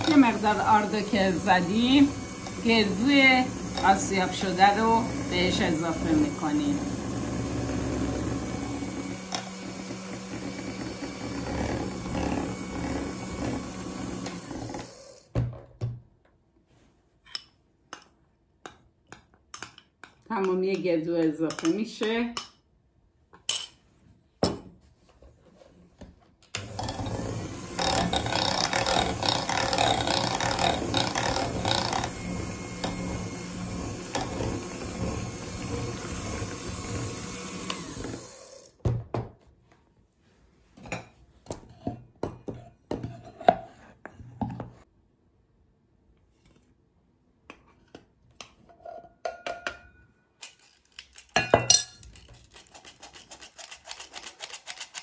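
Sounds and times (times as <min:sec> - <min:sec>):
electric hand mixer running: 0:00.0 - 0:15.3, 0:26.6 - 0:38.8.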